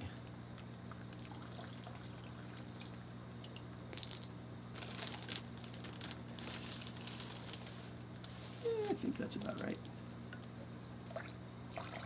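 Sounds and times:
steady low hum: 0.0 - 12.0
water poured into plastic bag: 3.9 - 7.7
plastic bag crinkling: 3.9 - 9.8.

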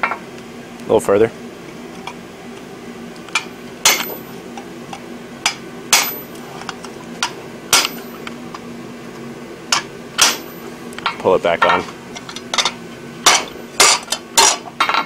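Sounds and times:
steady low hum: 0.0 - 15.0
sledgehammer striking metal: 3.8 - 4.3, 5.9 - 6.3, 7.7 - 8.1, 10.2 - 10.6.

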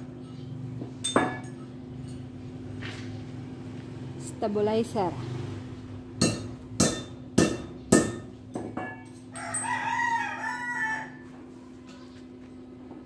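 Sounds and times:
sharp metallic clanks: 0.2 - 2.3, 6.2 - 9.8
steady low hum: 5.8 - 9.4
rooster crowing: 9.3 - 11.4.

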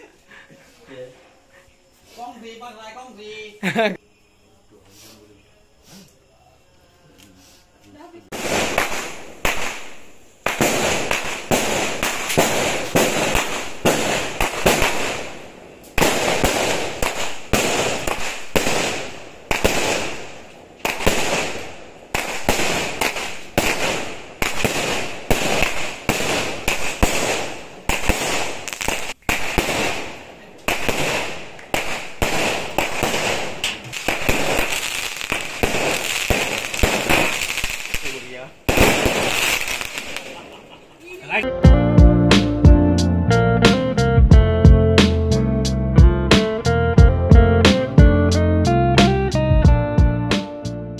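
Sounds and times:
firecrackers crackling: 8.2 - 41.5
fireworks banging: 8.3 - 41.0.

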